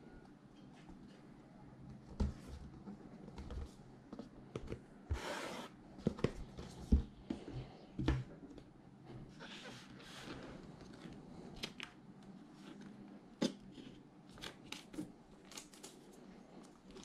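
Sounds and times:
faint rustling and sliding: 0:09.0 - 0:11.5.

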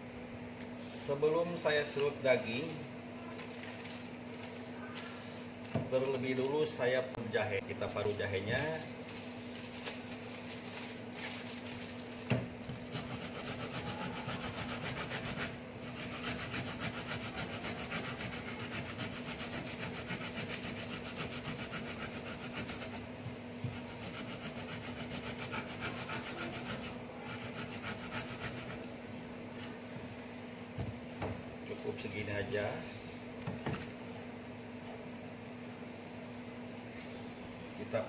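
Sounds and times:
ginger scraping on a grater: 0:12.9 - 0:23.0, 0:23.7 - 0:28.9.

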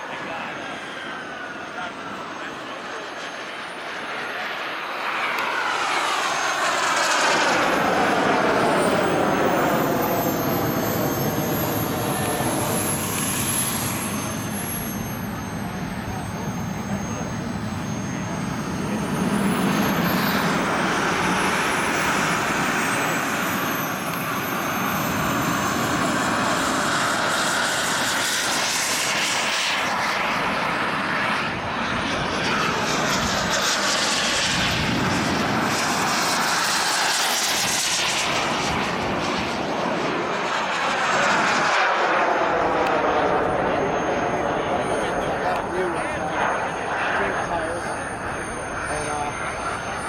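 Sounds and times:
jet whine sliding in pitch: 0:00.0 - 0:50.0
model jet turbine engines: 0:00.0 - 0:50.0.

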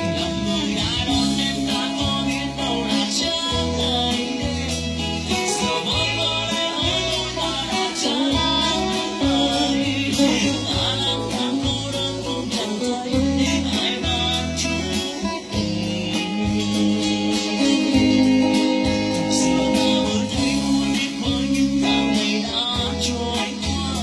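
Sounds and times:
deep bass line: 0:00.0 - 0:24.0
guitar picking melody: 0:00.0 - 0:24.0
person singing: 0:00.0 - 0:24.0.

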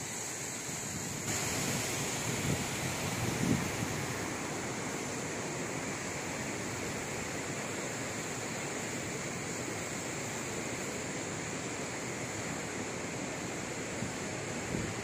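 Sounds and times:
steady rushing hiss: 0:00.0 - 0:15.0.

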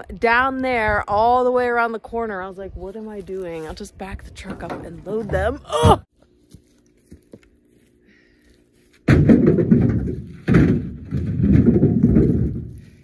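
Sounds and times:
firewood thudding into truck bed: 0:09.0 - 0:12.8.

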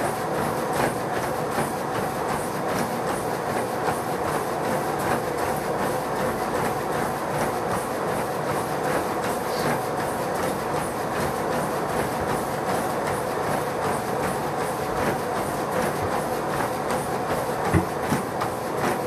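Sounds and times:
footfalls on treadmill deck: 0:00.0 - 0:19.0
treadmill belt and motor: 0:00.0 - 0:19.0
heavy thump: 0:17.7 - 0:18.0.

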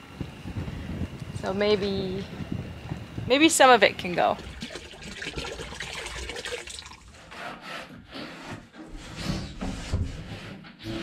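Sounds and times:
water pouring into a bucket: 0:04.4 - 0:07.1.

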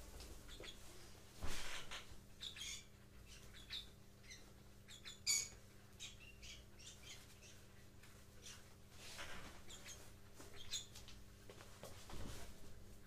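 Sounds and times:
birds chirping: 0:00.4 - 0:00.8, 0:01.7 - 0:11.0.

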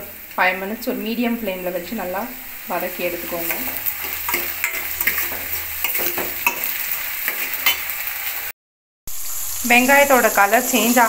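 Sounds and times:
vegetables sizzling in oil: 0:00.0 - 0:11.0
utensil scraping pan: 0:03.0 - 0:07.9.

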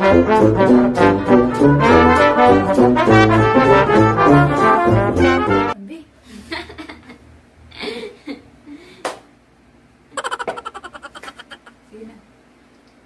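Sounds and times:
brass tune: 0:00.0 - 0:05.8
women laughing: 0:10.2 - 0:11.8.

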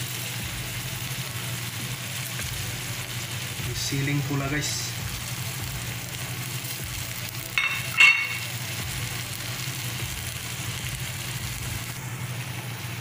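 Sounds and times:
food sizzling in a pan: 0:00.0 - 0:13.0
sharp metallic clink: 0:07.6 - 0:08.5.

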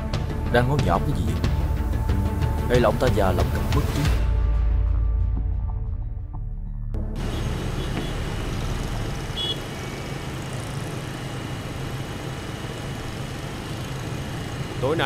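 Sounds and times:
motorbike engine running: 0:07.2 - 0:15.0
passing car traffic: 0:07.2 - 0:15.0.

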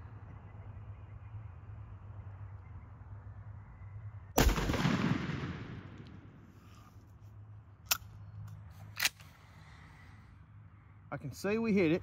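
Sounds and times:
shotgun shot with echo: 0:04.4 - 0:06.0.

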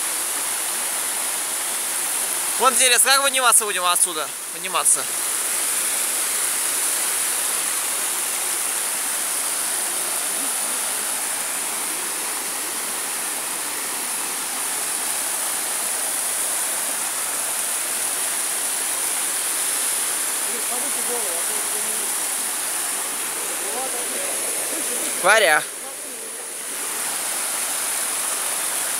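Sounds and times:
waterfall rushing over rocks: 0:00.0 - 0:28.9.

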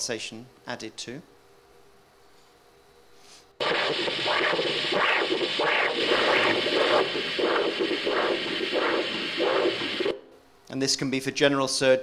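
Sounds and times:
loud hiss: 0:03.6 - 0:10.3
rhythmic whooshing swells: 0:03.6 - 0:10.3.

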